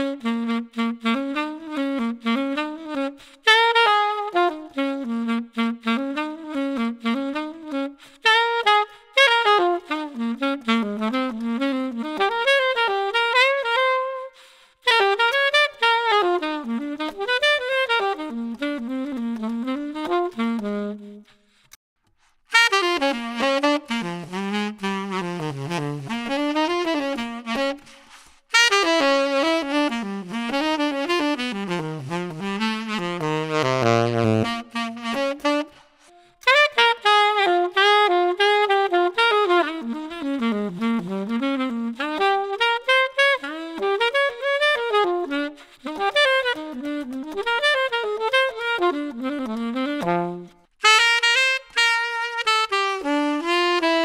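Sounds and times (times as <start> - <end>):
alto saxophone phrases: 0.0 - 21.4, 22.5 - 54.0
tenor saxophone melodic lines: 0.0 - 21.6, 22.5 - 54.0.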